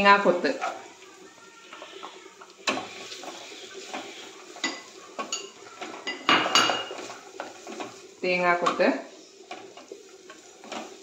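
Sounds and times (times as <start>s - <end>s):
faint sizzle: 0.0s - 11.0s
spatula scraping frying pan: 1.6s - 8.4s, 9.2s - 11.0s.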